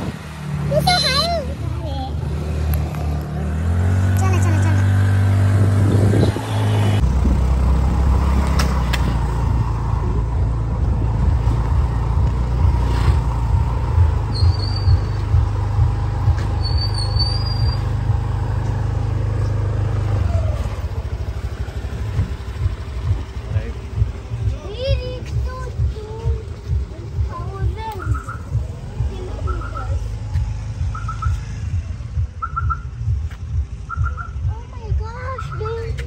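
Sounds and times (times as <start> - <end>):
motor scooter rumble: 0.0 - 36.0
wind buffeting microphone: 5.3 - 12.4.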